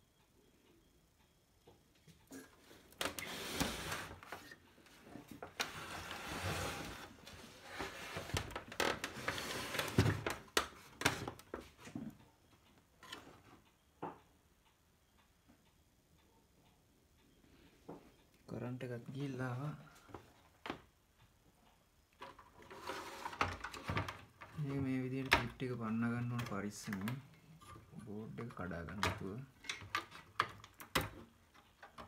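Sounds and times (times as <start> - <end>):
television scraping and rattling on workbench: 3.0 - 4.6, 5.5 - 10.4, 22.3 - 24.2.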